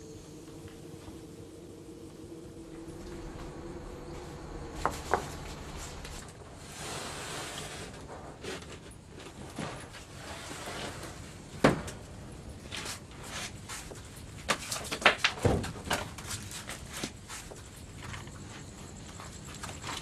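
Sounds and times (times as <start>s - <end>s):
sliding glass door on track: 2.8s - 8.4s.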